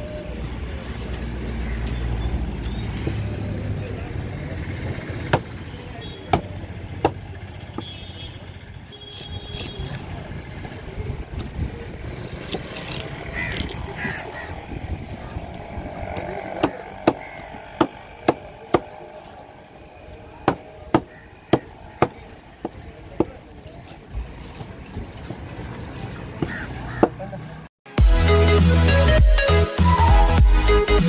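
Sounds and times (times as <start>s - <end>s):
traffic: 0.0s - 27.7s
cleaver chopping fish on wood: 5.3s - 5.6s, 6.3s - 7.2s, 16.2s - 18.9s, 20.4s - 23.4s.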